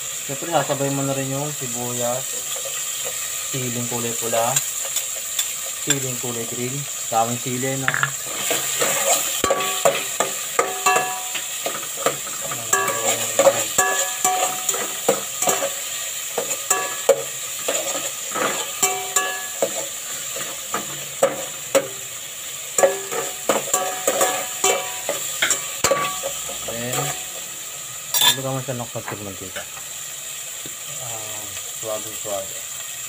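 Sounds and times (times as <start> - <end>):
vegetables sizzling in oil: 0.0 - 33.0
pot ringing: 10.6 - 11.6, 12.7 - 15.7, 16.6 - 17.3, 18.7 - 19.8, 22.8 - 26.4, 28.1 - 28.4.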